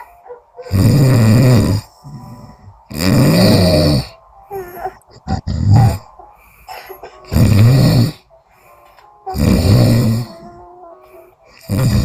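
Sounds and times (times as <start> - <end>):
woman snoring loudly: 0.7 - 2.2, 2.9 - 4.1, 7.3 - 8.2, 9.3 - 10.6, 11.7 - 12.0.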